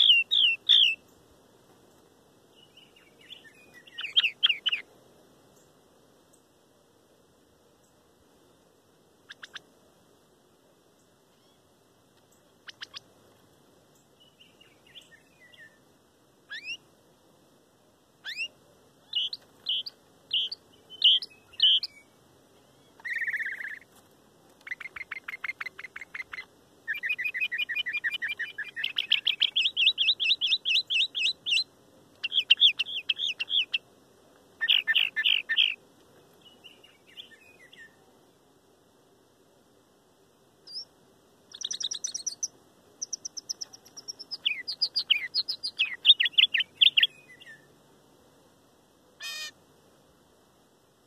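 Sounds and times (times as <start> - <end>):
mockingbird singing: 0.0 - 1.2, 2.6 - 4.9, 9.3 - 9.6, 12.6 - 13.0, 18.2 - 23.9, 24.6 - 33.8, 34.6 - 35.8, 41.5 - 47.6.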